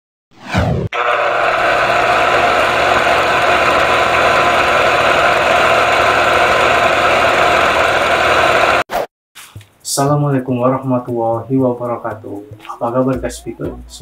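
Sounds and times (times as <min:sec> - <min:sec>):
film projector whirring: 0:01.0 - 0:08.8.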